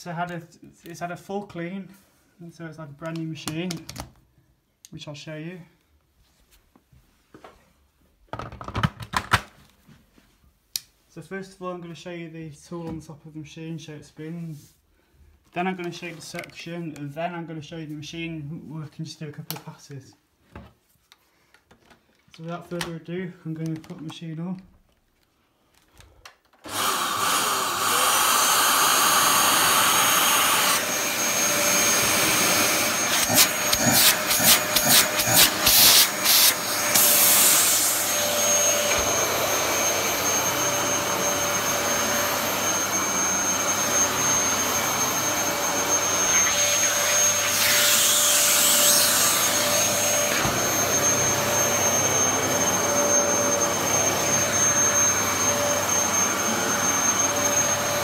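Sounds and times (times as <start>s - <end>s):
vacuum cleaner running with whine: 26.6s - 58.0s.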